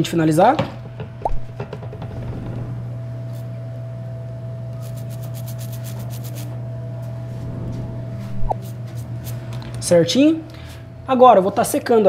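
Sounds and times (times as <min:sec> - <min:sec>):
steady low hum: 0:00.8 - 0:12.0
small brush scrubbing: 0:04.8 - 0:06.5.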